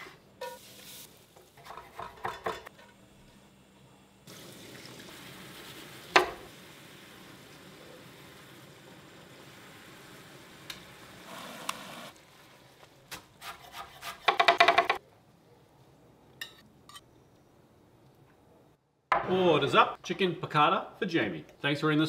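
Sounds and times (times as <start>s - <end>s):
sauce simmering: 4.2s - 13.0s.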